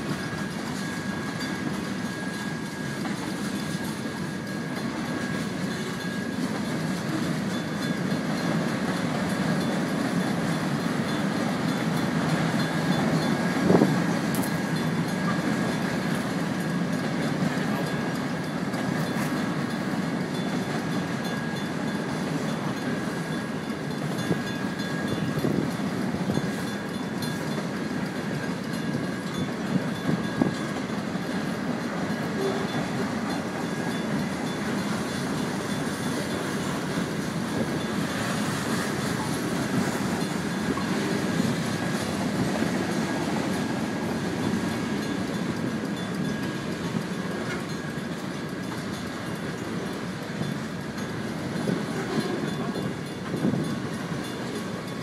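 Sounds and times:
crossing bell ringing: 0.0 - 55.0
freight train wheels rumbling: 0.0 - 55.0.

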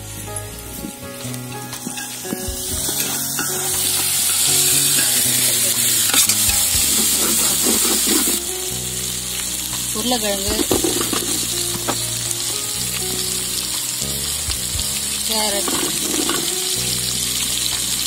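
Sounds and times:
soft background music: 0.0 - 18.0
vegetables sizzling in oil: 0.0 - 18.0
steel ladle stirring: 1.6 - 8.4.

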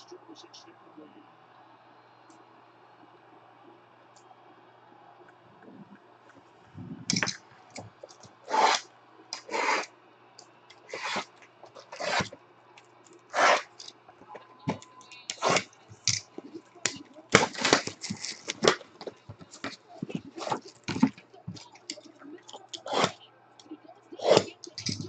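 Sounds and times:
cardboard boxes sliding: 10.9 - 12.4.

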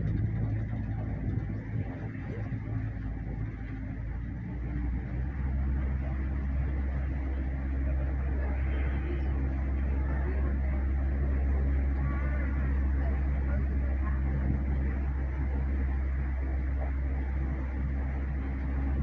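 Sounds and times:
boat motor humming: 0.0 - 19.0.

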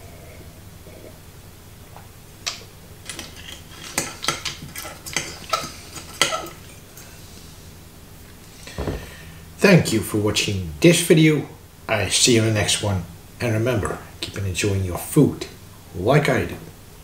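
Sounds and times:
sharp knock: 8.8 - 9.2.

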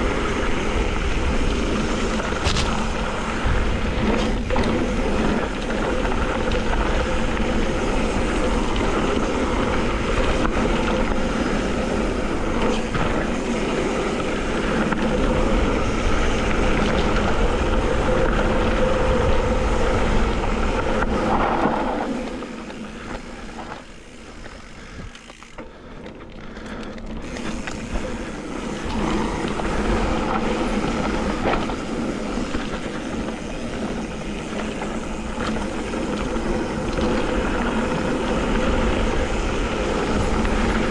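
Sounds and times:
wind on camera microphone: 0.0 - 25.5
bike tyres rumbling on dirt: 0.0 - 40.9.

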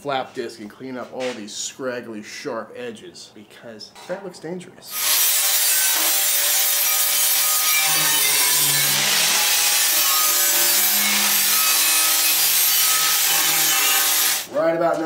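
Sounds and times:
angle grinder grinding steel: 4.9 - 14.5.

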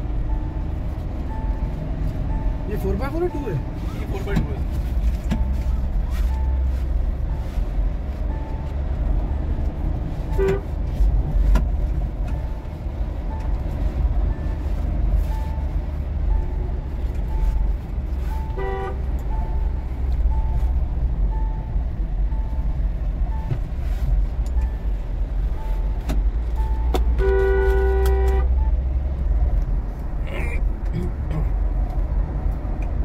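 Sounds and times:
engine and road rumble: 0.0 - 33.0
car horn toots: 10.3 - 10.8, 18.5 - 19.3, 26.9 - 28.7.

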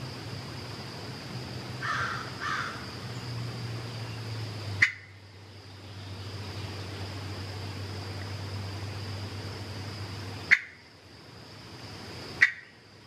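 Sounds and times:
steady high-pitched hum: 0.0 - 13.0.

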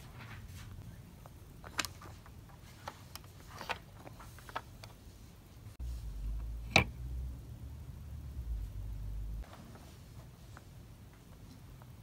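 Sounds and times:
low steady hum: 4.8 - 12.0.

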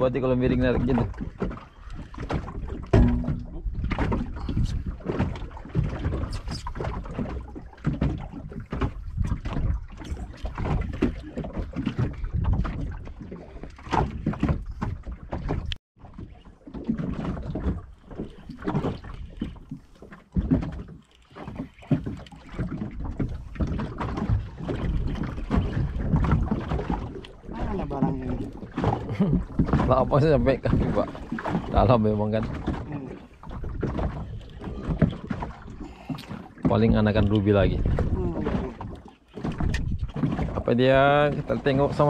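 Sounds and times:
water sloshing against boat: 0.0 - 42.0
wind buffeting microphone: 2.1 - 15.8, 22.0 - 35.9, 36.7 - 42.0.

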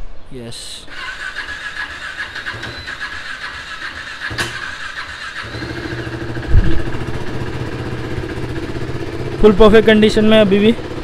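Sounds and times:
motorcycle engine running: 2.6 - 11.0.

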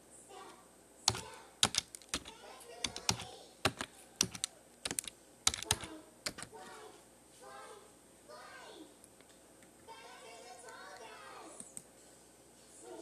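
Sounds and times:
keyboard key clicks: 1.1 - 6.5.

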